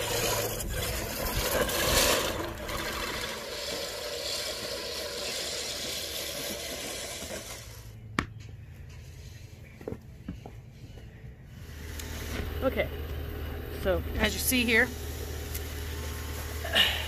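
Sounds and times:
reel mower whirring and clattering: 0.0s - 8.0s, 11.6s - 17.0s.

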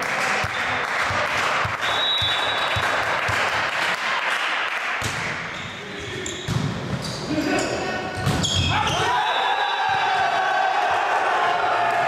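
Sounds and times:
spectators clapping: 0.0s - 5.0s.

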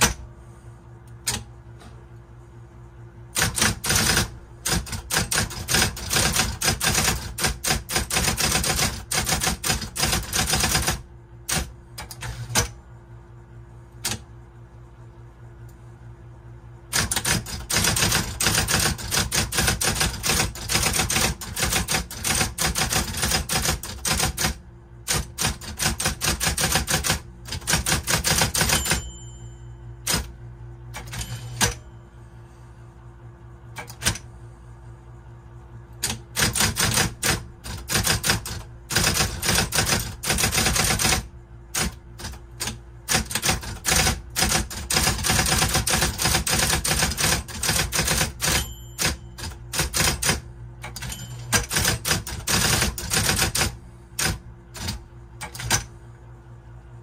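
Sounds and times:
electric typewriter keystrokes: 0.0s - 0.3s, 1.2s - 1.5s, 3.3s - 12.8s, 14.0s - 14.3s, 16.9s - 29.3s, 30.0s - 31.8s, 33.8s - 34.2s, 36.0s - 55.9s
typewriter motor humming: 3.3s - 12.8s, 14.0s - 14.2s, 16.9s - 29.1s, 30.0s - 30.3s, 30.9s - 31.8s, 33.8s - 34.3s, 36.0s - 55.9s.

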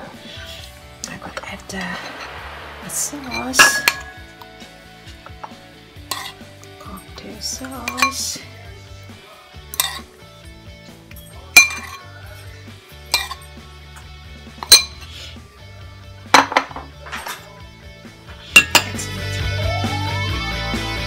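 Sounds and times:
background music: 0.0s - 21.0s
metal spoon clinking on dishes: 5.3s - 8.3s, 9.7s - 10.1s, 11.2s - 12.4s, 13.1s - 13.6s, 14.6s - 15.1s, 18.6s - 19.0s.

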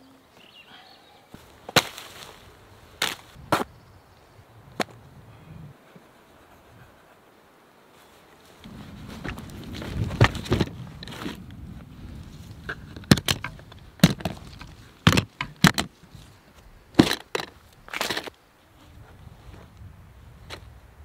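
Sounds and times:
case rustling through undergrowth: 1.4s - 3.8s, 7.9s - 19.8s.

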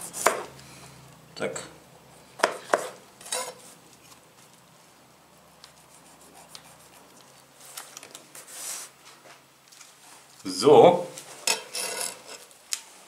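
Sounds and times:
knife scraping avocado skin: 0.0s - 0.5s, 5.6s - 7.3s.

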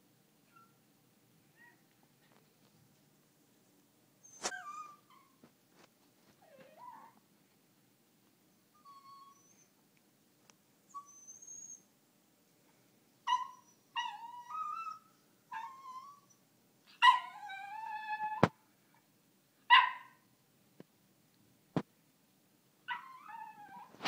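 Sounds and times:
dog whining and whimpering: 4.2s - 5.4s, 6.4s - 7.2s, 8.7s - 9.7s, 10.9s - 11.9s, 13.3s - 16.4s, 17.0s - 18.5s, 22.9s - 24.0s.

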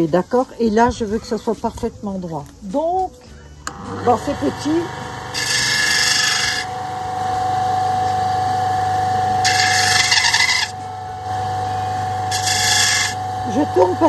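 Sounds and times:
disc sander motor hum: 3.7s - 14.0s
resin grinding on sanding disc: 3.7s - 14.0s.

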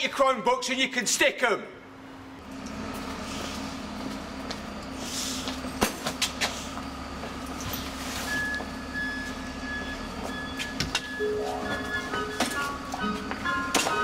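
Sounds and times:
vehicle engine idling: 1.9s - 10.7s
high on-off beeping: 8.3s - 14.0s.

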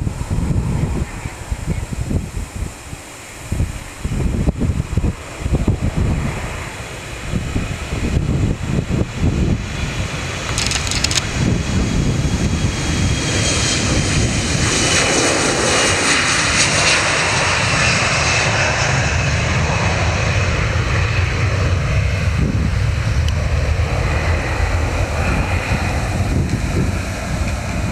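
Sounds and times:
jet engines at takeoff: 0.0s - 27.9s.

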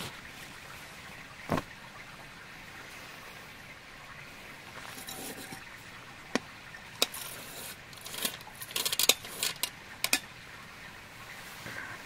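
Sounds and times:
gear clicking and clattering: 7.0s - 10.2s.

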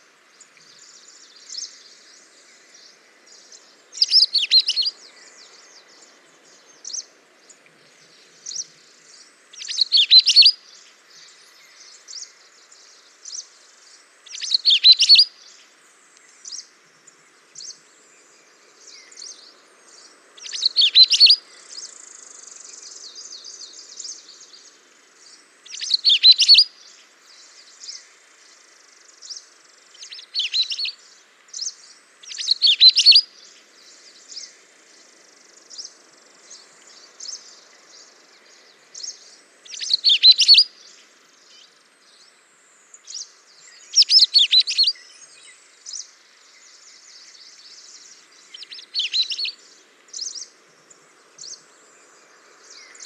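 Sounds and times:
soft bird chirps: 0.0s - 53.0s
songbirds singing: 0.0s - 53.0s.

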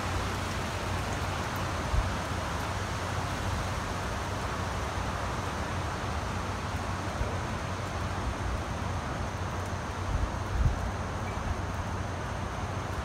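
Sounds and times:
wind and rain rushing: 0.0s - 13.0s.

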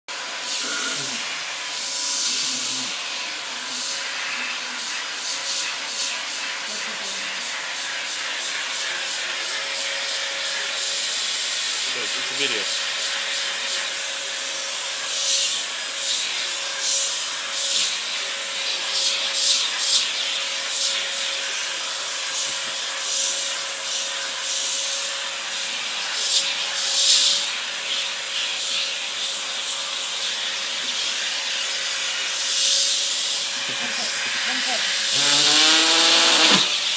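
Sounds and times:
vacuum cleaner running: 0.1s - 36.9s
brush head rasping on fur: 32.5s - 36.8s.

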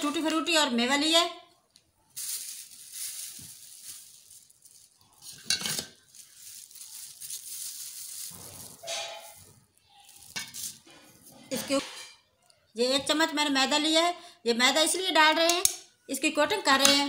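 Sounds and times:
dishes and utensils clinking: 5.2s - 6.0s, 8.3s - 12.3s.

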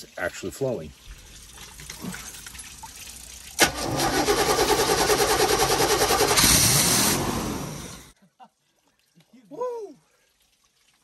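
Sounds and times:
engine cranking on starter: 3.6s - 8.1s
engine running: 3.6s - 8.1s.

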